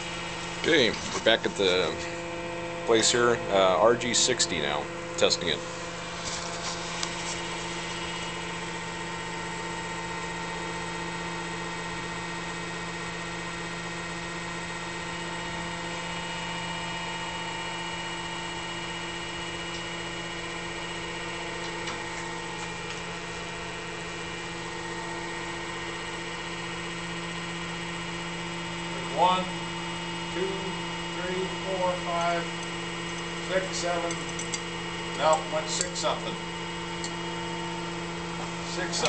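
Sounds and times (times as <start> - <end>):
steady machine tones: 0.0 - 6.2
testing machine motor humming: 0.0 - 39.0.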